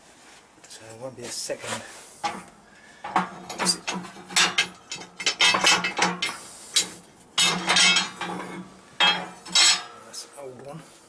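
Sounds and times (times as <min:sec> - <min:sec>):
steel parts clinking and scraping: 0:02.2 - 0:10.2.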